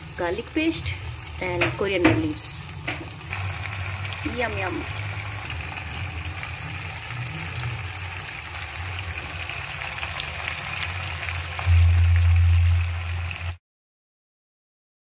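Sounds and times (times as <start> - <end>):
machine hum with high whine: 11.6 - 13.6.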